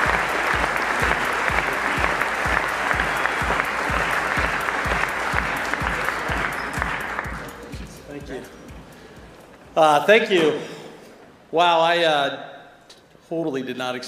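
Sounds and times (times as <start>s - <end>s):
audience applauding: 0.0s - 8.9s
music with steady beat: 0.0s - 9.8s.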